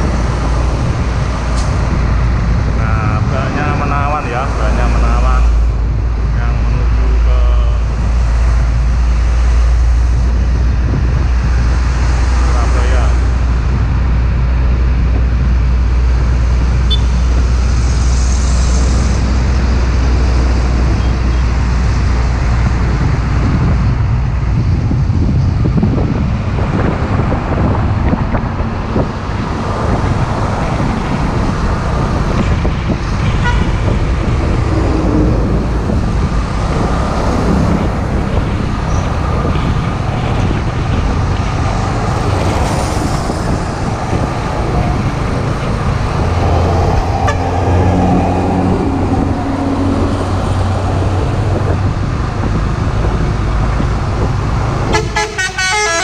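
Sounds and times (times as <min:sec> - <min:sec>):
heavy highway traffic rumble: 0:00.0 - 0:56.0
truck engine drones: 0:00.0 - 0:56.0
multi-tone truck horn: 0:16.9 - 0:17.3, 0:33.3 - 0:34.0, 0:47.2 - 0:49.6, 0:54.9 - 0:56.0.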